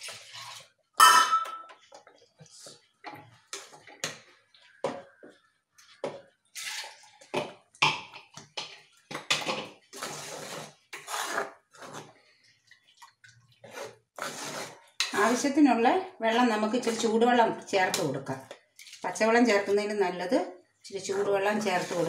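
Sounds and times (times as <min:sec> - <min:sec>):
ladle scraping clay pot: 0:00.0 - 0:00.8, 0:09.7 - 0:12.2, 0:13.0 - 0:15.8, 0:16.6 - 0:20.0, 0:21.0 - 0:22.0
ladle squelching thick mixture: 0:00.0 - 0:00.9, 0:01.7 - 0:20.2, 0:20.9 - 0:22.0.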